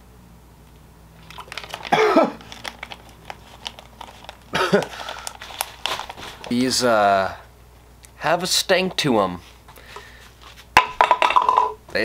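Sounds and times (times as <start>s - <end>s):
plastic package crinkling: 1.2s - 6.9s.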